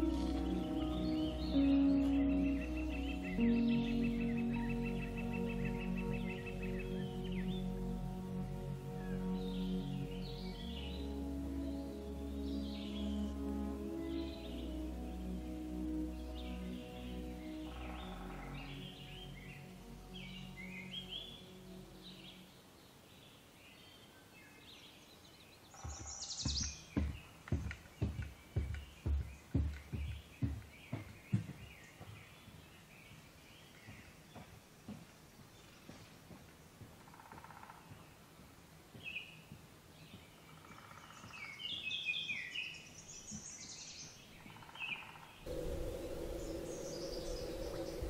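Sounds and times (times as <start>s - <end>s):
birds chirping: 0.0s - 34.6s, 39.0s - 48.0s
footsteps on trail: 25.8s - 41.8s
faint lower trill: 45.5s - 48.0s
songbird whistling: 45.5s - 48.0s
steady low hum: 45.5s - 48.0s.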